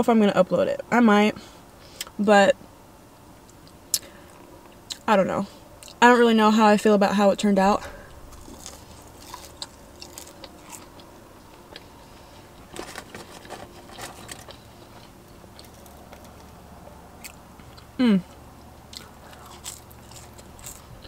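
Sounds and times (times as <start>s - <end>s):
low steady hum: 0.0s - 21.0s
person chewing crunchy food: 8.0s - 21.0s.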